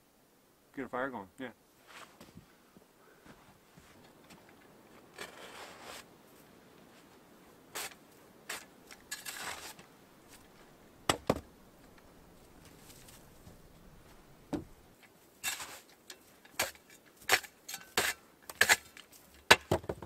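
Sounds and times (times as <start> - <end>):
shovel scraping snow: 1.8 - 2.2, 4.9 - 6.1, 7.7 - 10.6, 15.4 - 16.0, 16.6 - 19.4
sharp knocks: 14.5 - 14.8.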